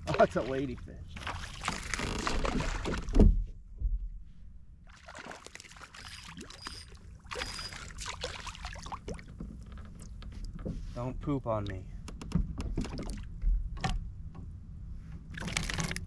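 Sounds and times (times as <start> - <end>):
water splashing: 0.0 - 3.2, 4.9 - 9.4
rustling and small knocks: 9.1 - 11.1, 11.7 - 16.0.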